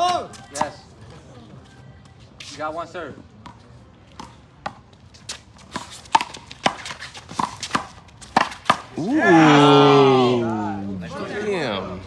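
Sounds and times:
onlookers saying ooh: 9.0 - 10.9.

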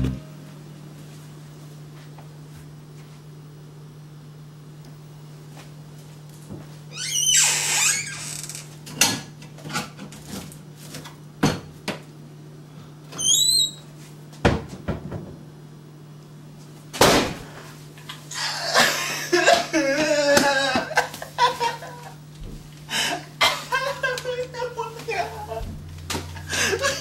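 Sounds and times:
brief high squeak: 13.2 - 13.8
man crying loudly: 18.4 - 22.2, 22.9 - 25.6, 26.3 - 27.0.

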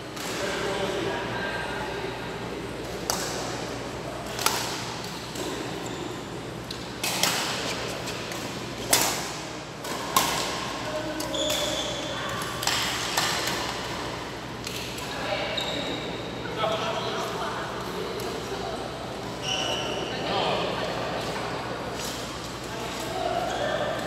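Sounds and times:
rackets hitting shuttlecock: 7.0 - 10.7.

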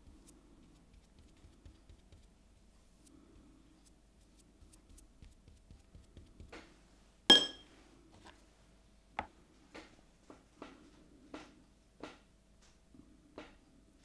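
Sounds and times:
sharp glassy clink: 7.3 - 7.7.

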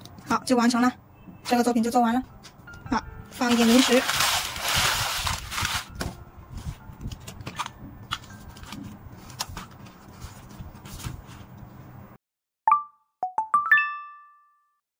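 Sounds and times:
packaging rustling: 3.4 - 6.0.

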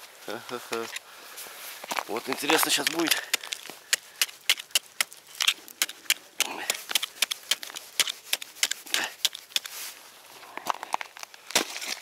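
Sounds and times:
ice crunching: 0.3 - 12.0
knocks chipping ice: 2.2 - 9.7.

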